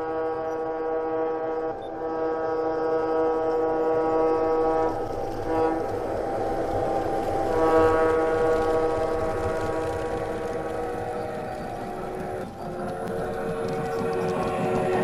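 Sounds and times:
model train horn chord: 0:00.0 - 0:11.2
model train rumbling on track: 0:00.0 - 0:15.0.

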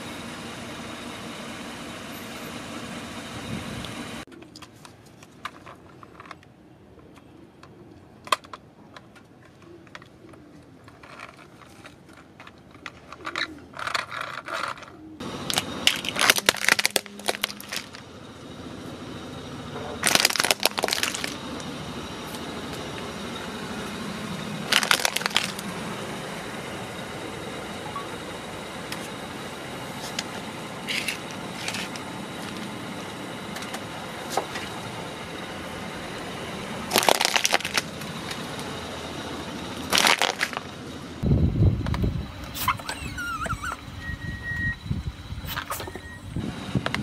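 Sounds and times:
car engine running: 0:00.0 - 0:04.3, 0:15.2 - 0:44.1.

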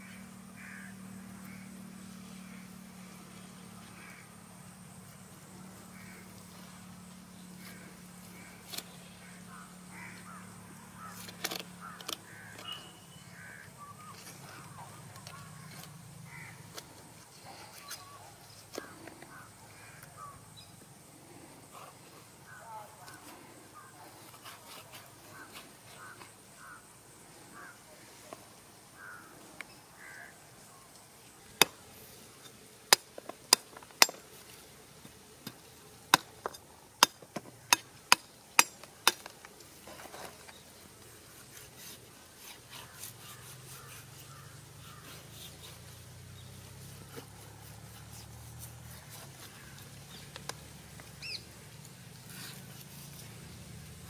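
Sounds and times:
cutting and scraping: 0:24.0 - 0:26.4, 0:31.5 - 0:50.6, 0:52.2 - 0:54.0
blade chopping on wood: 0:35.4 - 0:39.4.

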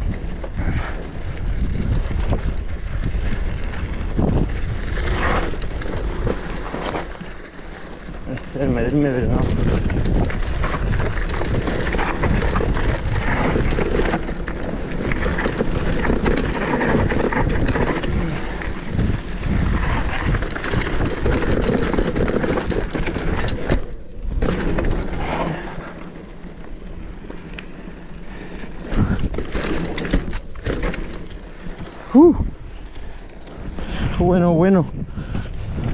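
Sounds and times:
wind on microphone: 0:00.0 - 0:06.7, 0:08.5 - 0:25.9, 0:28.6 - 0:29.9, 0:31.7 - 0:32.9, 0:33.6 - 0:35.9
bike knocking and rattling: 0:00.0 - 0:34.8
bike tyres on dirt: 0:00.0 - 0:35.9.

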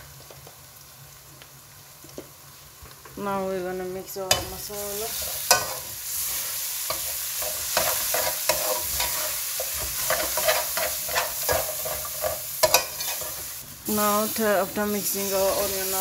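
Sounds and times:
onions sizzling in hot oil: 0:00.0 - 0:16.0
metal spoon scraping a pot: 0:06.9 - 0:13.4.

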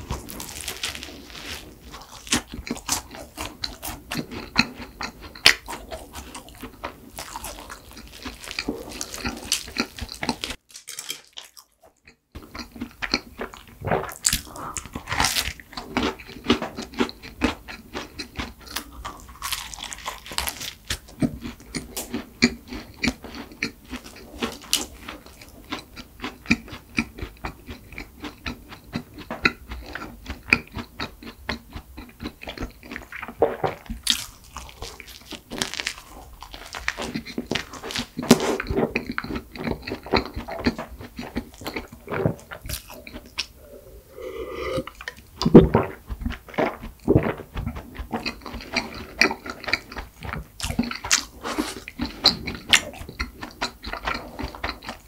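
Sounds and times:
chewing crunchy pastry: 0:00.0 - 0:43.8, 0:44.8 - 0:55.0
sipping milk: 0:41.7 - 0:49.2.

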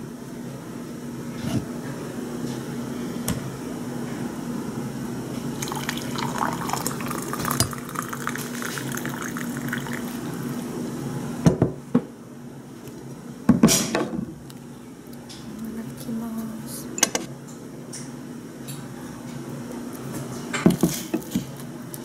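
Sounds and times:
steady low hum: 0:00.0 - 0:22.0
coffee pouring into a mug: 0:05.6 - 0:10.7.

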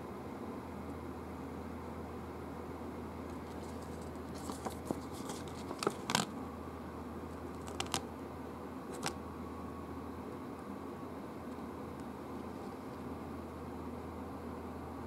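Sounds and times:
steady low hum: 0:00.0 - 0:15.0
paper pages rustling: 0:03.4 - 0:06.3, 0:07.6 - 0:08.0, 0:08.9 - 0:09.2.

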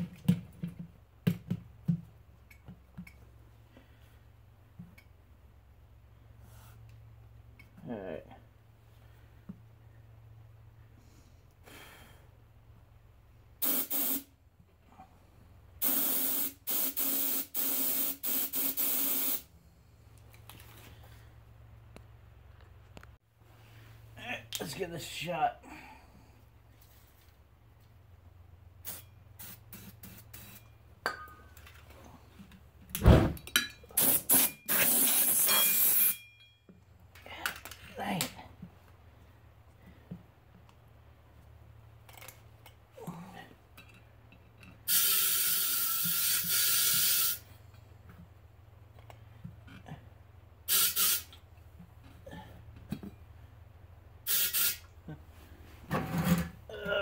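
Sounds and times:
compressed air hissing: 0:13.6 - 0:14.3, 0:15.8 - 0:19.5, 0:34.0 - 0:36.1, 0:44.9 - 0:47.5, 0:50.7 - 0:51.3, 0:54.2 - 0:54.9.

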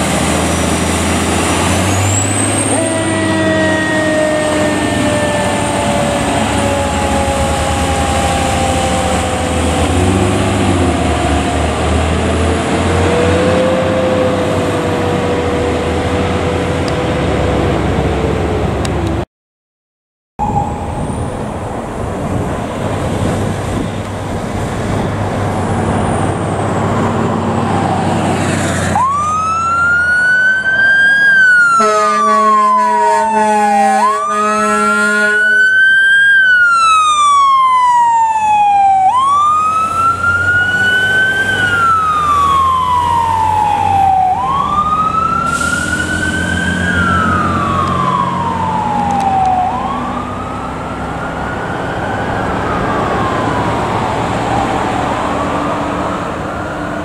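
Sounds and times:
fire engine running: 0:00.0 - 0:19.2, 0:20.4 - 0:57.0
siren wailing: 0:01.7 - 0:11.8, 0:20.4 - 0:22.0, 0:27.2 - 0:57.0
horn blasts: 0:31.7 - 0:35.6.

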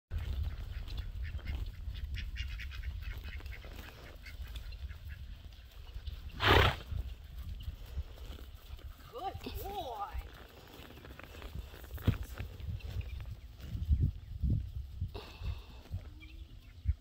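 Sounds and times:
ducks quacking: 0:00.2 - 0:05.4.

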